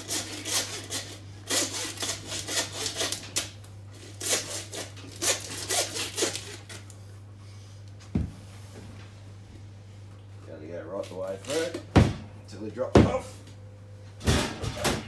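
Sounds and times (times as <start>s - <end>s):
hacksaw sawing bone: 0.0s - 3.3s, 4.2s - 6.8s.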